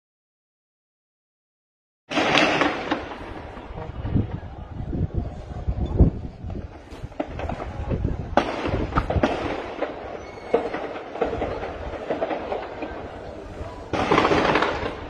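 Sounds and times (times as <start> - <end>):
distant gunshots echoing: 2.1 - 3.8, 8.3 - 15.0.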